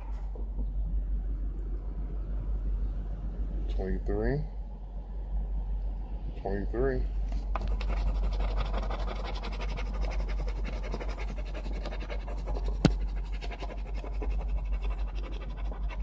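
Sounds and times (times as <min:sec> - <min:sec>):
scratching lottery ticket: 0:07.4 - 0:16.0.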